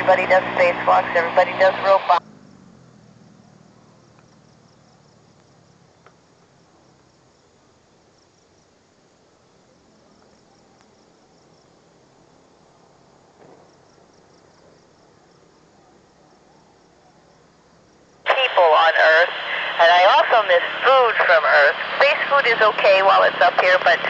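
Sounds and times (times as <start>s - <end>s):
crickets chirping: 2.2s - 18.3s.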